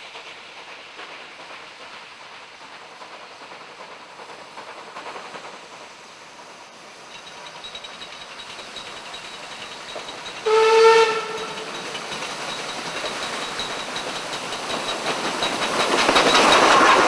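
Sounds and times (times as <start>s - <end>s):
train approaching: 0.0s - 17.0s
train whistle blast: 10.4s - 11.6s.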